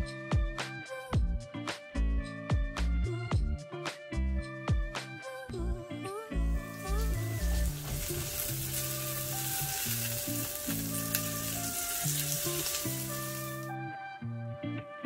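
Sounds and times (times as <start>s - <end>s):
background music: 0.0s - 15.0s
food sizzling in a pan: 6.5s - 13.7s.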